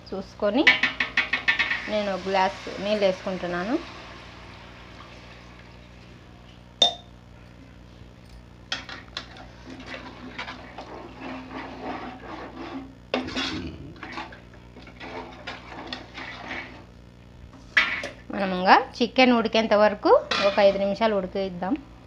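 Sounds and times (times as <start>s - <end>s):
ladle scraping against pot: 8.8s - 16.9s, 17.6s - 18.2s, 20.3s - 20.9s
ladle stirring curry in pot: 8.9s - 16.9s.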